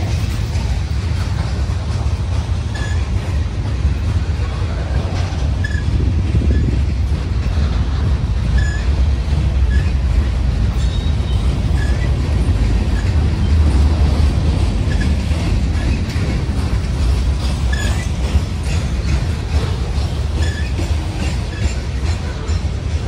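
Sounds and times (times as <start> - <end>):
train rumbling on rails: 0.0 - 23.0
high-pitched squeaks: 2.7 - 3.4, 8.5 - 9.0, 17.6 - 18.8.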